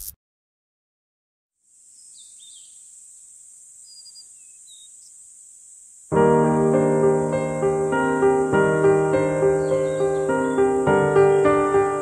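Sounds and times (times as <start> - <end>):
high insect trill: 1.6 - 12.0
bird chirps: 1.8 - 5.2, 9.2 - 11.8
piano-led music: 6.1 - 12.0.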